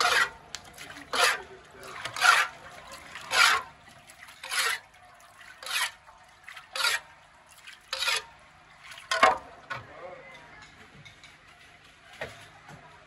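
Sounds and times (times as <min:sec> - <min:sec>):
water splashing: 0:00.0 - 0:09.6.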